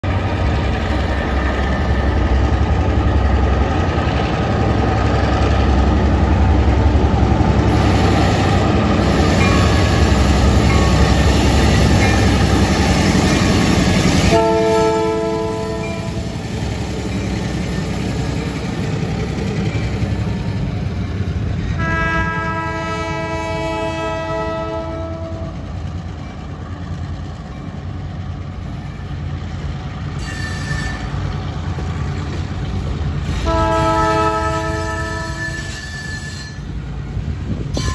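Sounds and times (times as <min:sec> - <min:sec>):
diesel locomotive engine rumbling: 0:00.0 - 0:37.9
train horn blasts: 0:14.2 - 0:16.3, 0:21.8 - 0:25.6, 0:33.3 - 0:36.6.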